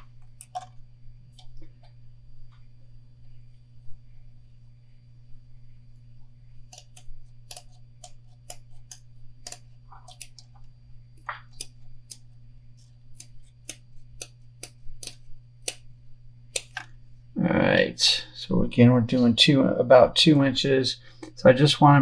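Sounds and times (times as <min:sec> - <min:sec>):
steady low hum: 0:00.0 - 0:22.0
mesh tape clicks: 0:06.6 - 0:15.9, 0:16.5 - 0:17.0.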